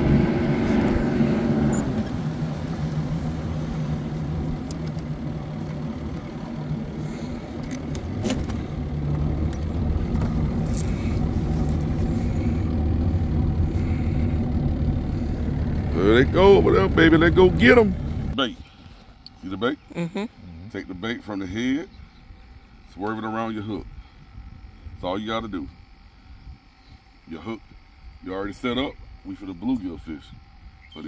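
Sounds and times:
wind and water rushing: 0.0s - 14.0s
outboard motor running: 0.0s - 19.2s.

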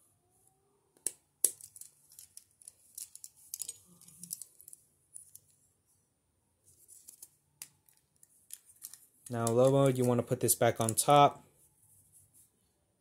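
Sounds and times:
plastic toy clicks and rattles: 1.4s - 5.5s.

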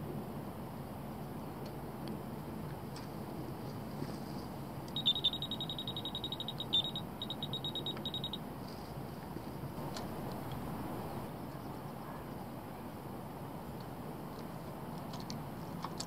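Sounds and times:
bite alarm high beeps: 4.9s - 8.4s.

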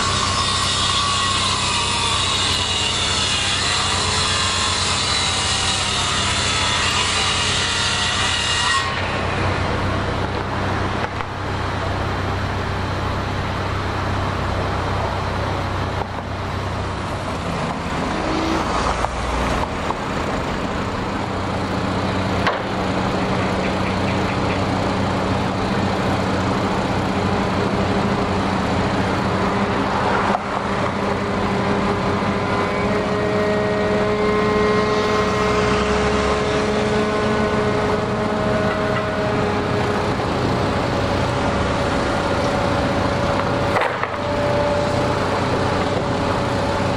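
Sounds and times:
construction machinery engines droning: 0.0s - 46.9s.

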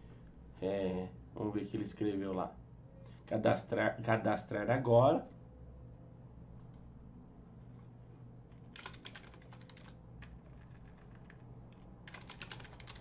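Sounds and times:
typing on computer keyboard: 8.7s - 13.0s.

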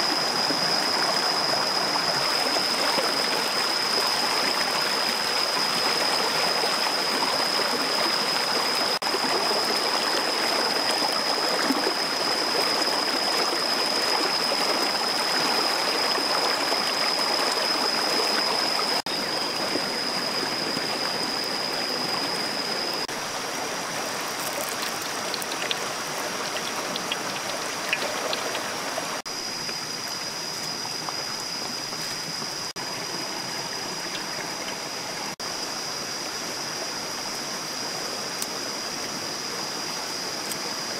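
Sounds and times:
high-pitched whine: 0.0s - 23.2s.

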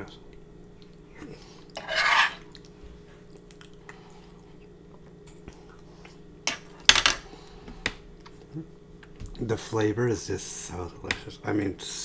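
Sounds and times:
steady low hum: 0.0s - 12.0s
wet eating sounds: 0.3s - 6.3s.

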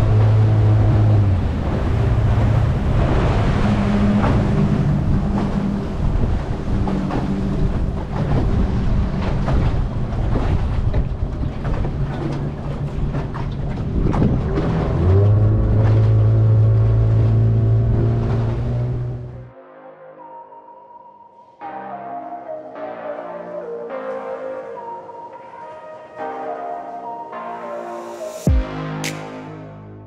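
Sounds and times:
rushing wind: 0.0s - 12.1s
boat engine running: 0.0s - 19.5s
water noise: 0.0s - 19.6s.

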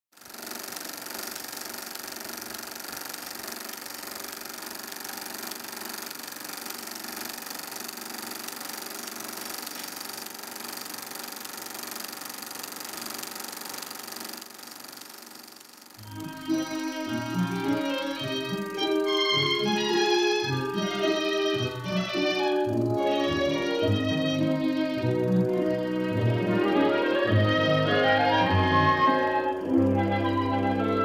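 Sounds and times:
film projector clatter: 0.1s - 23.9s.

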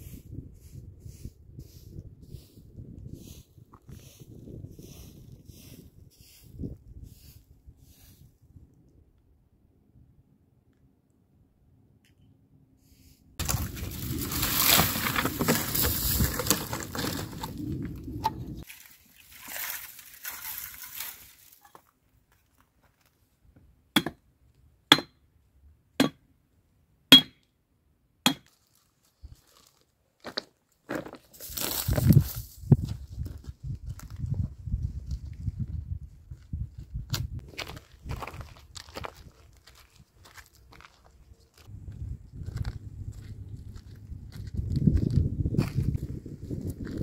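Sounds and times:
rough rustling: 13.4s - 18.0s
dry wood cracking: 13.4s - 18.1s
branches and gravel crunching: 13.4s - 23.3s, 28.3s - 34.3s, 37.2s - 47.0s.

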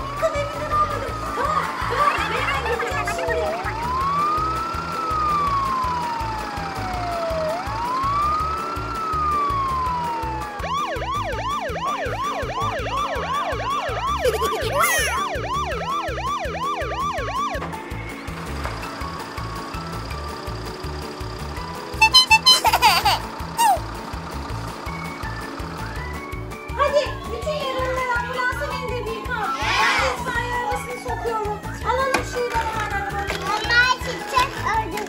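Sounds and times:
background music: 0.0s - 35.0s
siren wailing and yelping: 0.7s - 17.6s, 22.0s - 23.8s.

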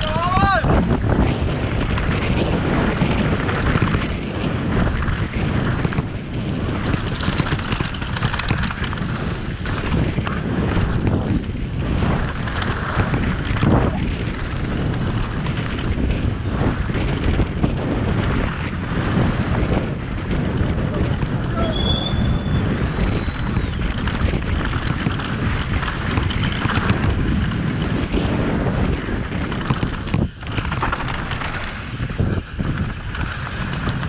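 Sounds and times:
bike knocking and rattling: 0.0s - 34.0s
wind noise on microphone: 0.0s - 34.0s.

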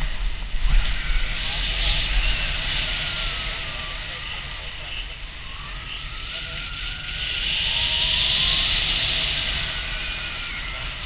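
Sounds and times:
wind rushing on microphone: 0.0s - 11.0s.

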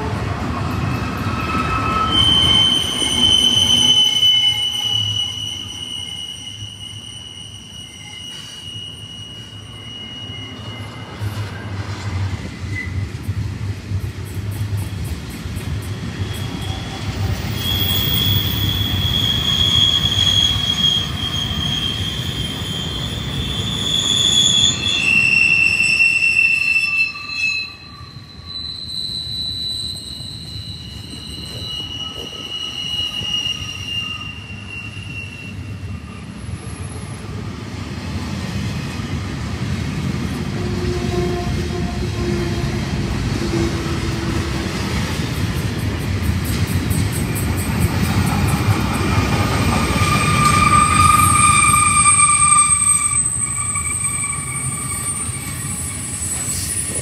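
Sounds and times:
train wheels rumbling on rail: 0.0s - 57.0s
high-pitched wheel squeal: 0.8s - 13.1s, 14.8s - 37.2s, 47.2s - 57.0s.

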